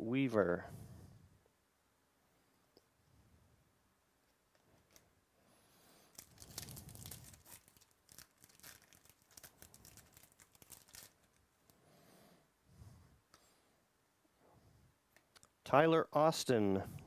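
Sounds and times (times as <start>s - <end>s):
foil wrapper tearing and crinkling: 6.1s - 11.4s.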